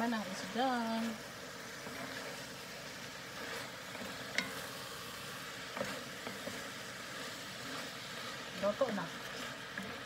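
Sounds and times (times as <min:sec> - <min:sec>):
stir-fry sizzling in a skillet: 0:00.0 - 0:10.0
spatula clicking against pan: 0:04.3 - 0:04.6.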